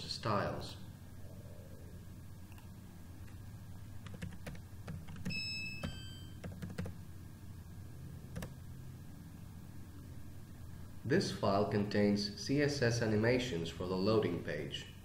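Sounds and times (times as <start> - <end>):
low hum: 0.7 - 4.1
keyboard and mouse clicking: 4.0 - 7.0
high ringing tone: 5.3 - 6.5.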